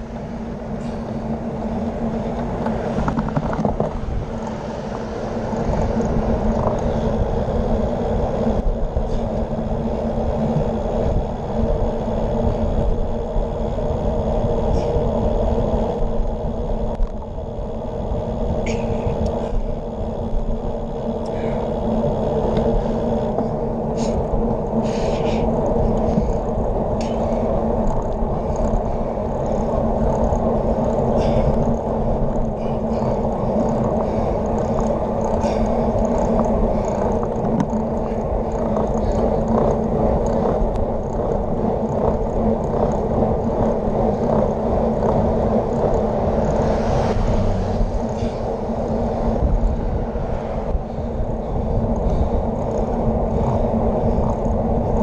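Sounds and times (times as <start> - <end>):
bicycle clicks: 0.0 - 55.0
bike tyres rumbling on road: 0.0 - 55.0
wind on microphone: 0.0 - 55.0
car tyres hissing on wet road: 46.1 - 50.6.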